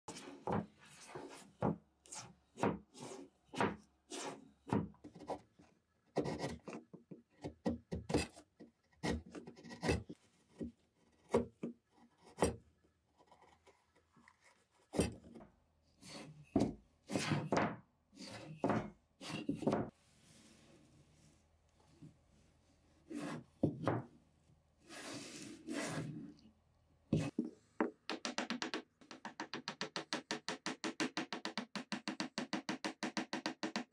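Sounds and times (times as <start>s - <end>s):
chisel scraping wood: 16.0s - 20.6s, 23.0s - 24.0s, 24.8s - 26.3s.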